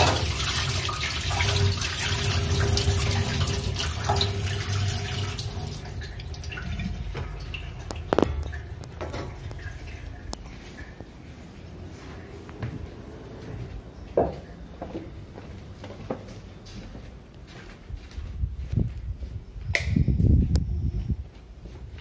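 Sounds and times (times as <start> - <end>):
tap water running into sink: 0.0 - 10.4.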